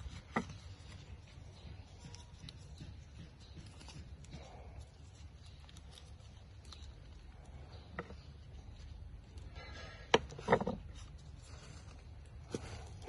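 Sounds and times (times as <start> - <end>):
banana leaf handling: 0.0 - 13.0.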